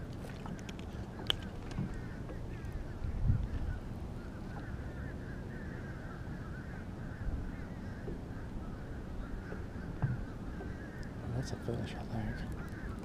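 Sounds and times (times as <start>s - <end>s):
bird calls chattering: 8.7s - 13.0s.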